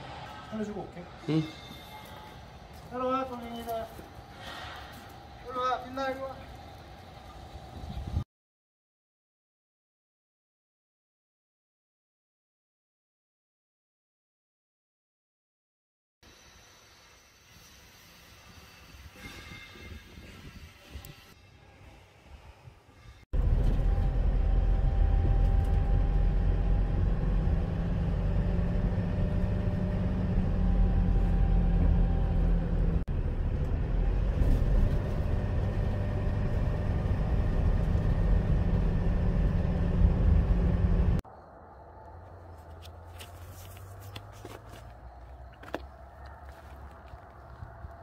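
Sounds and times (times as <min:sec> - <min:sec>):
outdoor ambience: 0:00.0 - 0:08.2, 0:16.2 - 0:48.0
car engine and road noise: 0:23.4 - 0:41.3, 0:42.1 - 0:48.0.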